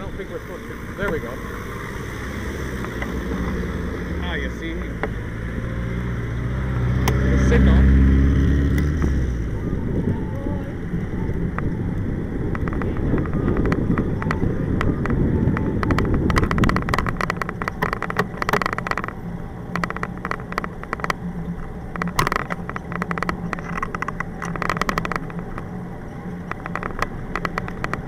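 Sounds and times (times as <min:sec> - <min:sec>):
bicycle tyre and road noise: 0:00.0 - 0:28.0
wind buffeting microphone: 0:00.0 - 0:28.0
bike rattling over cracked pavement: 0:08.8 - 0:28.0.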